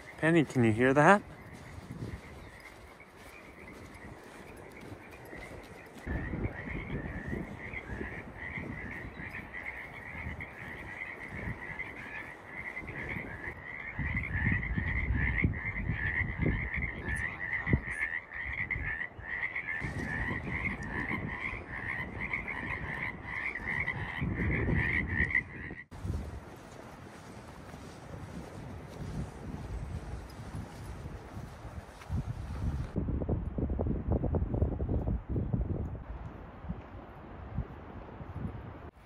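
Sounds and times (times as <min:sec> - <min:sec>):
frogs calling: 0:00.0 - 0:25.9.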